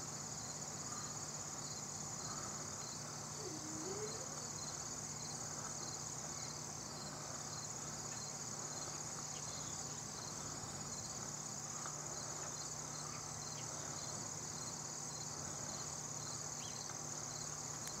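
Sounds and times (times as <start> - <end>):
insect chorus trilling: 0.1 - 18.0
low steady hum: 2.2 - 6.9
faint bird chirps: 3.3 - 4.9.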